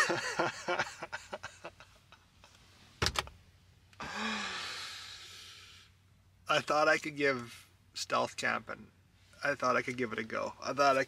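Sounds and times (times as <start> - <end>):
man laughing breathily: 0.0 - 2.2, 4.0 - 5.0
long breathy exhale: 4.0 - 5.9.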